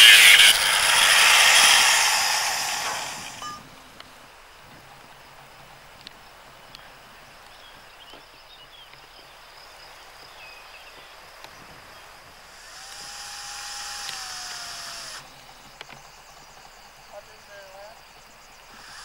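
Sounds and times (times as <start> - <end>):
power drill motor whine: 0.0 - 3.7, 12.7 - 15.2
faint outdoor background: 0.0 - 19.0
small clicks: 14.0 - 15.2.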